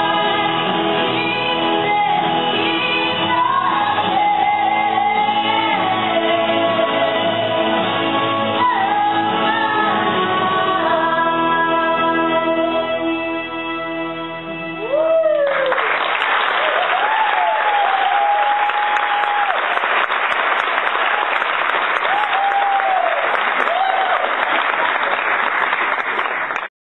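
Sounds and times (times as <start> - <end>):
people whooping and cheering: 14.8 - 20.2, 21.0 - 25.5
audience applause: 14.8 - 26.7.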